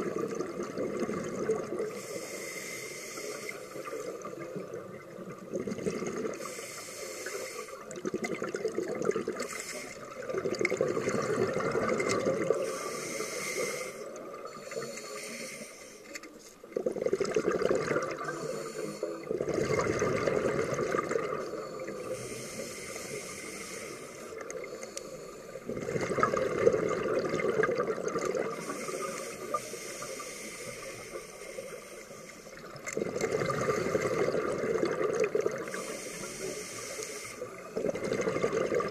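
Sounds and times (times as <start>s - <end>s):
scuba regulator bubbly exhalations: 0.0s - 2.2s, 3.8s - 6.6s, 7.8s - 14.9s, 16.7s - 22.4s, 25.6s - 30.3s, 32.6s - 36.8s, 37.4s - 38.9s
regulator inhaling: 1.9s - 4.2s, 6.4s - 7.9s, 9.4s - 10.2s, 12.6s - 16.4s, 18.2s - 19.3s, 21.4s - 25.7s, 28.6s - 32.7s, 35.6s - 37.7s.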